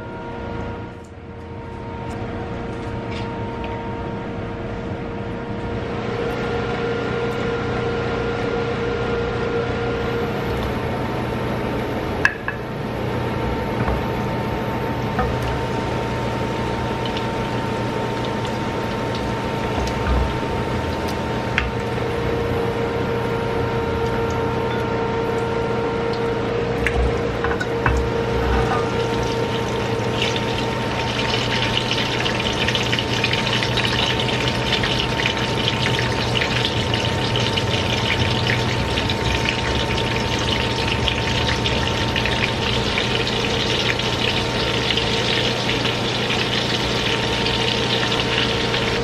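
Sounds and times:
cooktop hum: 0.1 - 49.0
garlic sizzling in oil: 15.0 - 49.0.

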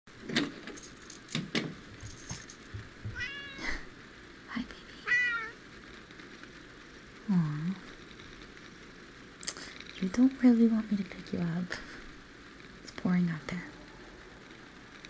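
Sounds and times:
metallic jingle: 0.7 - 1.4, 2.0 - 2.8
cat meowing: 3.1 - 3.9, 5.0 - 5.6.

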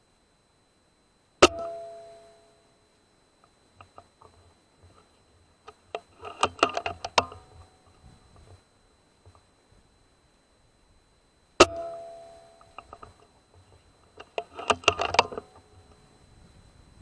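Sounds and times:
rifle action metallic clicks: 5.7 - 7.7, 14.2 - 15.7.

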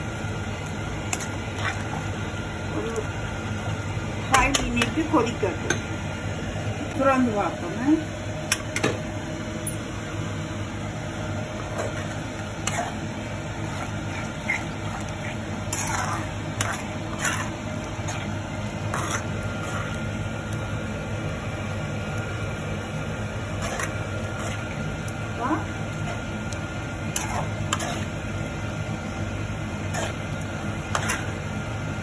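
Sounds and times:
steady low hum: 0.0 - 32.0
metal spoon stirring thick gravy: 0.6 - 2.3, 11.6 - 20.7, 23.2 - 31.8.

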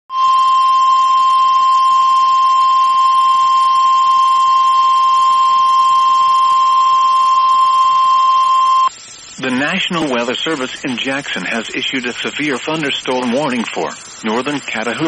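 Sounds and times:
steady alarm beep: 0.1 - 8.9.

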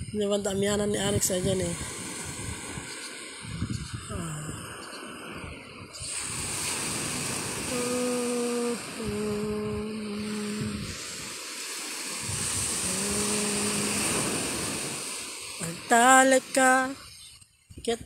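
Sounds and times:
wind on microphone: 0.0 - 18.0
waves breaking on pebbles: 1.7 - 3.5, 5.0 - 9.1, 10.2 - 16.9
person humming: 7.7 - 11.0, 12.8 - 14.2.

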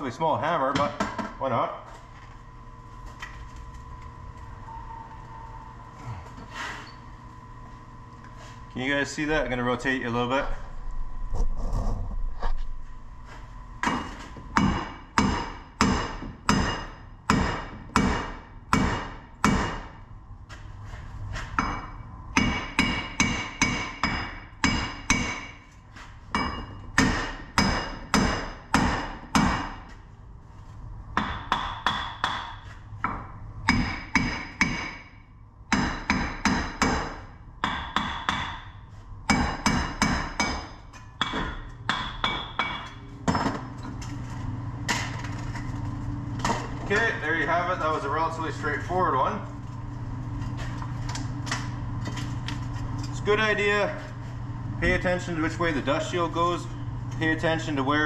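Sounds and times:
hammer striking steel: 13.8 - 19.9, 21.6 - 25.6, 26.3 - 29.8, 31.2 - 43.6.

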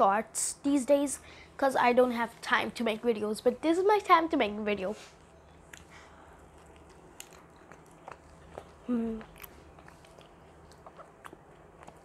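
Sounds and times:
person chewing: 5.4 - 12.0
person humming: 8.8 - 9.3.

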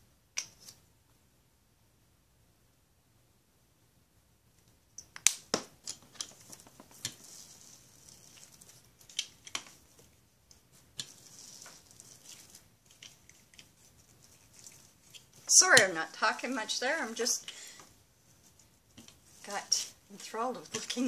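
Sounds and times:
sharp clicks and snaps: 0.3 - 0.8, 4.6 - 7.2, 9.0 - 9.8
cling wrap crinkling: 5.9 - 21.0.

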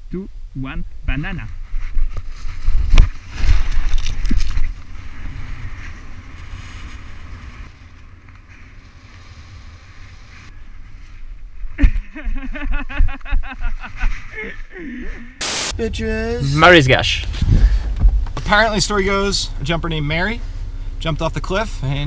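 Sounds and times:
rushing air on helmet camera: 4.6 - 11.2, 17.2 - 18.8.

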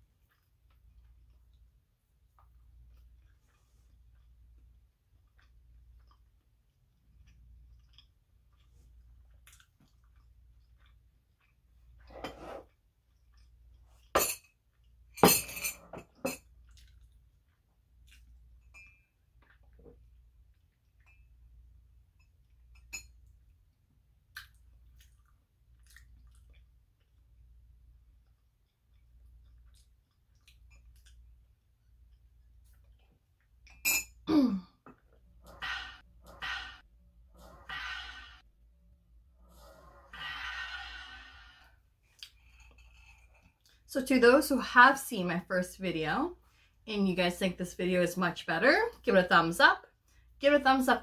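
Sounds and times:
woman sighing: 34.3 - 34.8
breathy exhales: 35.5 - 38.4, 39.4 - 41.8.

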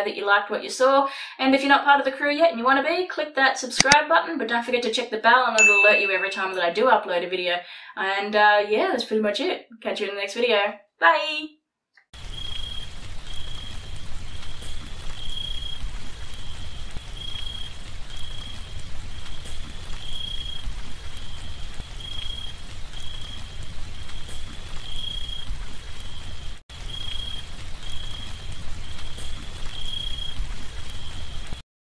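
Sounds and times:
high-pitched repeating chirp: 5.6 - 6.6
rain falling on puddles: 12.2 - 31.6.

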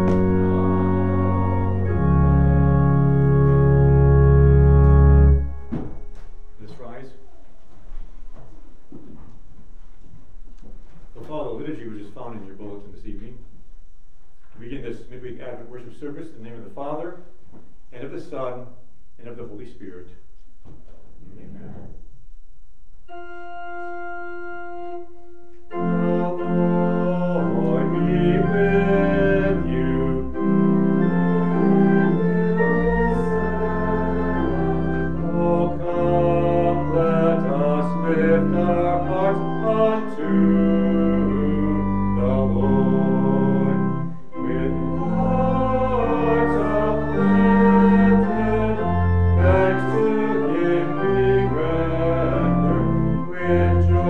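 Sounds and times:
church organ playing: 0.0 - 7.0, 23.1 - 54.0.

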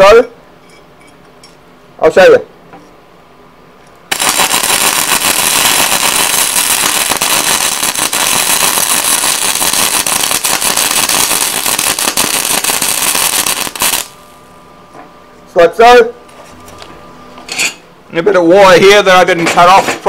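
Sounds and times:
welding arc crackling: 4.1 - 14.4.

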